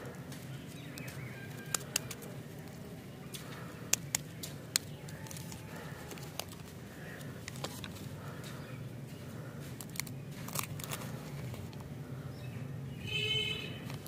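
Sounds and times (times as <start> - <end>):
steady low hum: 0.0 - 13.1
wrapper crackling: 1.0 - 2.8, 3.9 - 8.0, 9.8 - 11.8.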